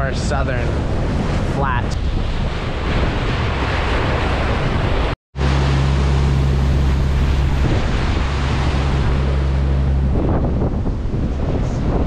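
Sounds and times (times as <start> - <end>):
water rushing in boat wake: 0.0 - 12.0
wind buffeting microphone: 0.0 - 12.0
diesel engine drone: 5.4 - 11.4.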